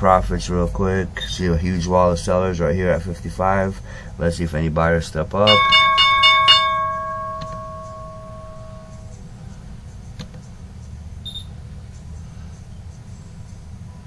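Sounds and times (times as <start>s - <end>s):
low steady hum: 5.3s - 9.9s
bell ringing: 5.5s - 9.2s.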